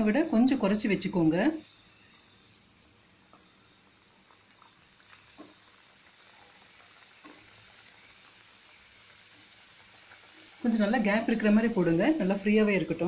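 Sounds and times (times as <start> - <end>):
oil sizzling: 0.0 - 13.0.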